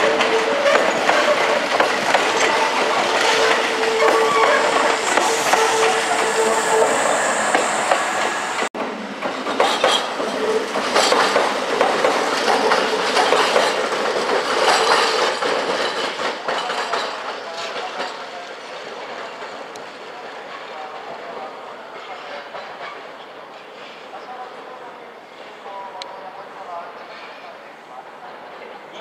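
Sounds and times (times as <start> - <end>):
train wheels clacking over rail joints: 0.0 - 19.7.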